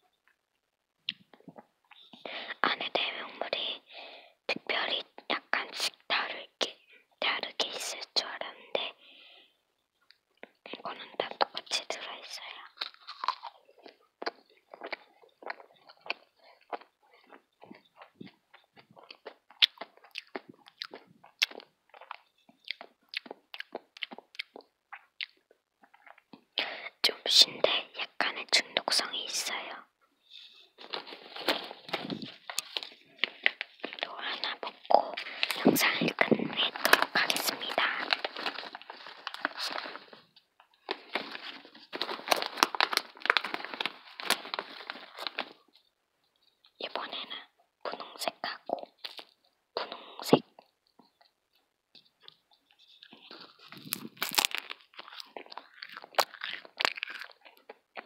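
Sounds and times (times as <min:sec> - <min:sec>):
chewing crunchy food: 0:12.6 - 0:26.6, 0:30.2 - 0:47.2, 0:47.9 - 0:58.0
crinkly rustling: 0:30.2 - 0:47.2, 0:52.0 - 0:58.0.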